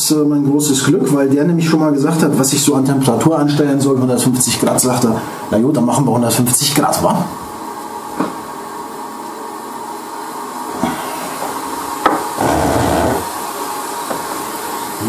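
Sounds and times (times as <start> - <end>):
hot-air pen hissing: 10.7 - 13.6.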